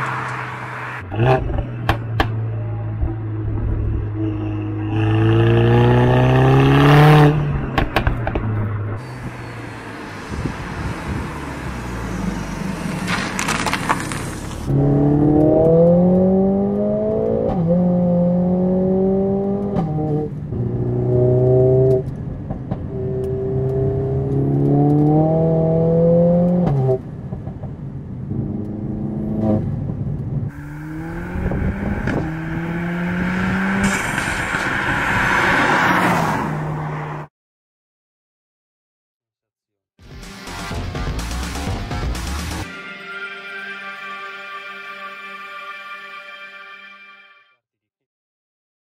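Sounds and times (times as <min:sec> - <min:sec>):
car engine accelerating hard: 0:08.4 - 0:22.2, 0:22.9 - 0:27.0, 0:30.5 - 0:37.2
car passing by: 0:09.0 - 0:16.6, 0:30.6 - 0:37.3.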